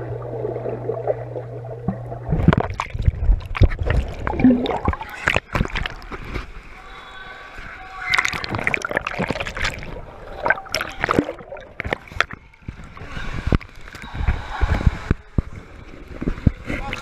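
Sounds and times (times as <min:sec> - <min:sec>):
muffled underwater gurgling: 0:00.0 - 0:06.1, 0:08.1 - 0:15.6
water splashing and sloshing: 0:00.0 - 0:17.0.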